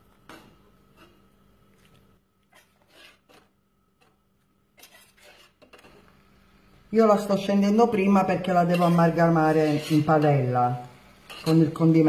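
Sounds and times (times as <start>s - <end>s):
faint short scrapes: 0.3s - 3.6s, 4.8s - 6.1s.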